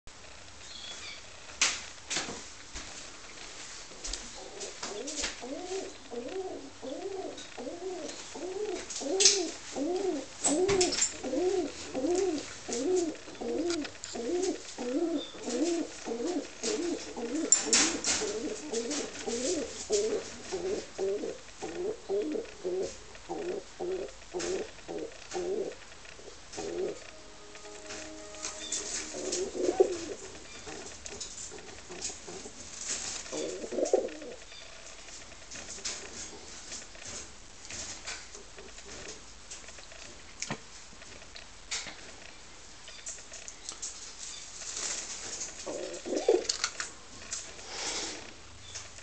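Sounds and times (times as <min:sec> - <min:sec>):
pigeon cooing: 0:04.4 - 0:25.8, 0:26.5 - 0:30.9, 0:33.3 - 0:34.4, 0:45.6 - 0:46.5.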